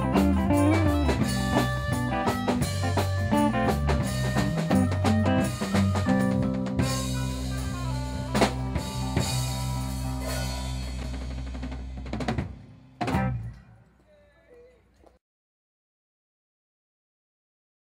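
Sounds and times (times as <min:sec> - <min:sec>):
drum and cymbal hit: 0:00.0 - 0:13.5
jazz band playing: 0:00.0 - 0:13.5.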